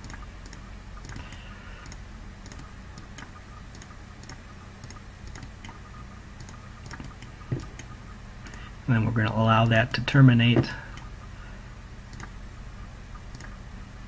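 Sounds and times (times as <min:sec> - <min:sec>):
computer mouse clicking: 0:00.0 - 0:05.8, 0:06.4 - 0:07.9, 0:12.1 - 0:12.4, 0:13.3 - 0:13.6
low electrical hum: 0:00.0 - 0:14.0.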